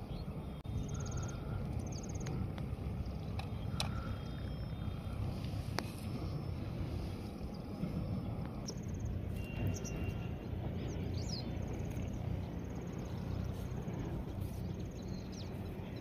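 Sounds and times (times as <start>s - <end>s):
faint bird chirps: 0.0s - 2.4s, 3.0s - 7.7s, 8.6s - 12.2s
steady low rumble: 0.0s - 16.0s.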